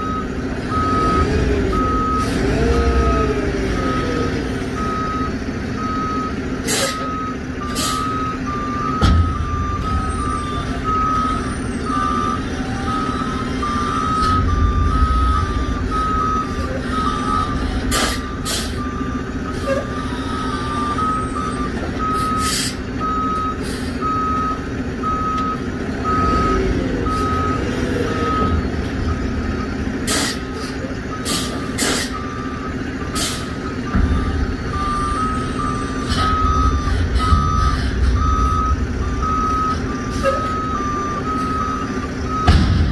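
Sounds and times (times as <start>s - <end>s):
diesel engine running: 0.0s - 42.9s
reversing alarm beeping: 0.0s - 42.9s
air brakes hissing: 6.6s - 7.1s, 7.7s - 8.2s, 17.4s - 18.9s, 22.2s - 22.8s, 23.6s - 24.0s, 30.0s - 32.4s, 33.1s - 33.7s, 35.3s - 38.3s.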